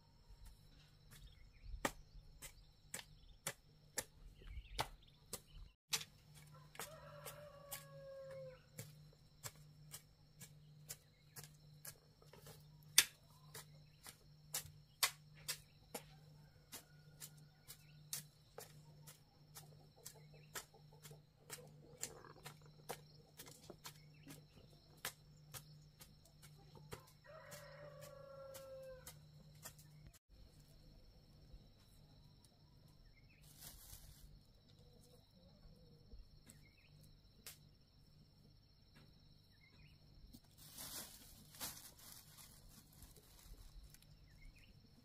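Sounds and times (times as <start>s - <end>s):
rooster crowing: 6.4s - 8.8s, 27.0s - 29.2s.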